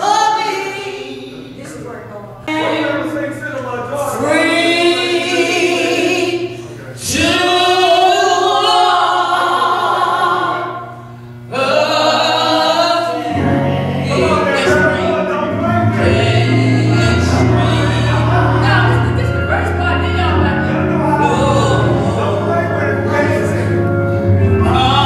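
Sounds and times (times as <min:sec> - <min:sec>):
gospel singing: 0:00.0 - 0:01.8, 0:02.4 - 0:25.0
low sustained instrumental accompaniment: 0:13.0 - 0:25.0.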